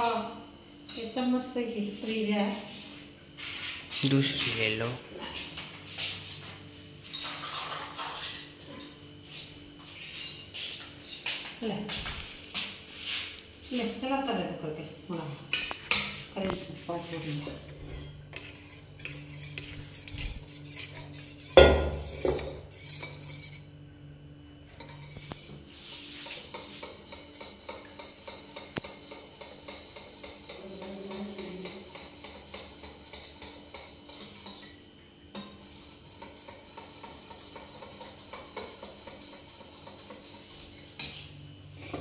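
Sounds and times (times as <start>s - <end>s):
spoon clinking against steel bowl: 26.4s - 34.7s.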